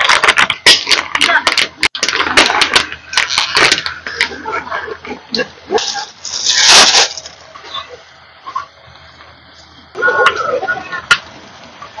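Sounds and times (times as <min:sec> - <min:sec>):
broth boiling and spattering: 0:00.0 - 0:04.3, 0:05.6 - 0:10.0
hissing burst of boiling: 0:05.7 - 0:07.4.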